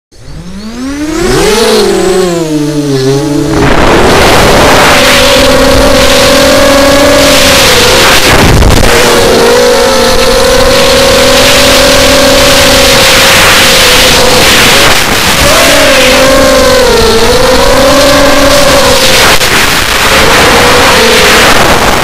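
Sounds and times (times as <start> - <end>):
drone motors whining: 0.1 - 22.0
rushing air noise: 1.0 - 17.6.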